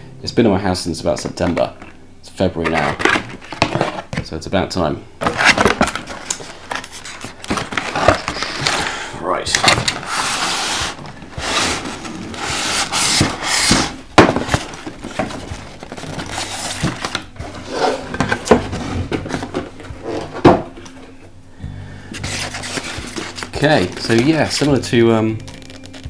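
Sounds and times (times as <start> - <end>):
boxes scraping and rubbing: 1.1 - 4.2, 5.2 - 21.1, 22.1 - 26.0
boxes knocking on table: 2.6 - 4.3, 12.5 - 20.8.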